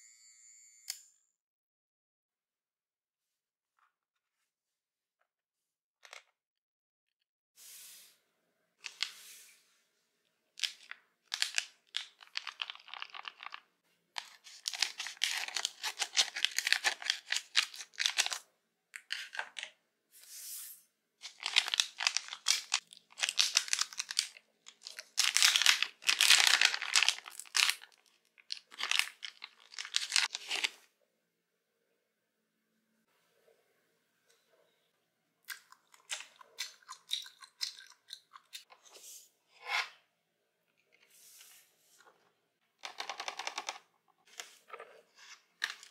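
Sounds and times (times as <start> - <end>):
plastic pouch crinkling and tearing: 10.6 - 18.4, 21.2 - 30.7.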